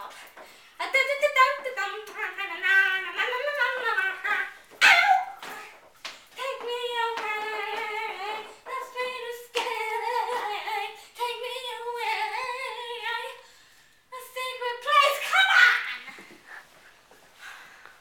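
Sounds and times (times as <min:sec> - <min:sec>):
child singing: 0:00.8 - 0:05.8, 0:06.4 - 0:13.4, 0:14.1 - 0:16.1.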